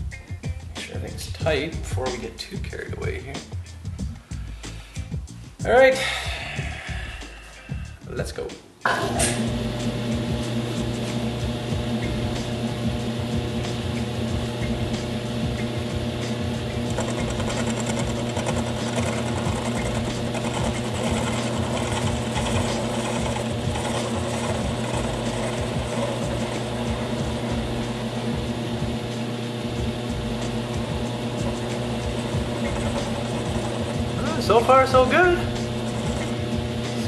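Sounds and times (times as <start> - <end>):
metal lathe humming: 8.9 - 37.0
lathe tool cutting steel: 9.0 - 37.0.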